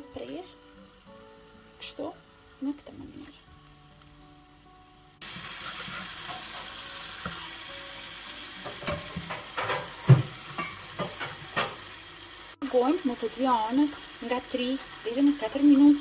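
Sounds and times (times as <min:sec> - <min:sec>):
chicken sizzling in frying pan: 0:04.2 - 0:16.0
metal tongs knocking on pan: 0:08.7 - 0:11.8.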